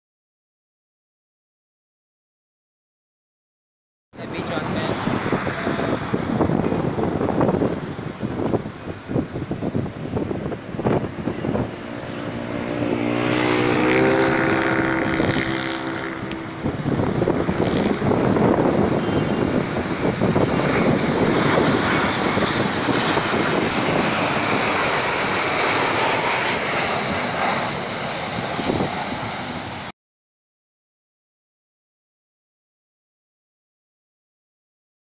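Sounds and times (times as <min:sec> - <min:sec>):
high fan whine: 0:04.2 - 0:29.8
jet airliner roaring overhead: 0:04.2 - 0:29.9.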